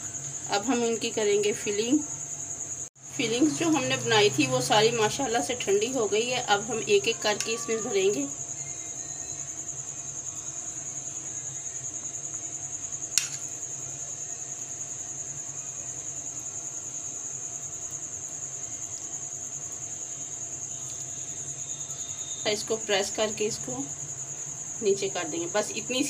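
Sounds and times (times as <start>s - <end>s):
cricket trilling: 0.0s - 26.0s
sharp click: 13.1s - 13.5s.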